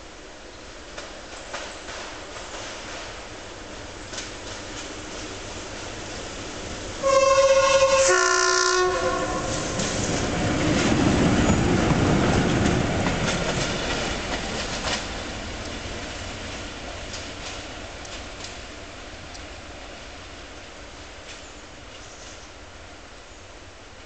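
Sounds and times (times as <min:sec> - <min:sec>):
wheels clacking over rail joints: 0:00.9 - 0:08.1, 0:09.0 - 0:19.5
locomotive horn two notes: 0:07.0 - 0:09.9.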